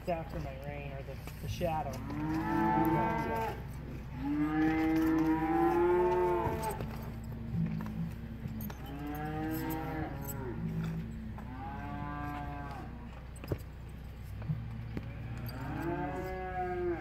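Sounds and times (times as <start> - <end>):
cow mooing: 1.9 - 7.6, 8.8 - 13.1, 15.0 - 17.0
lower cattle calls: 1.9 - 13.2, 14.6 - 17.0.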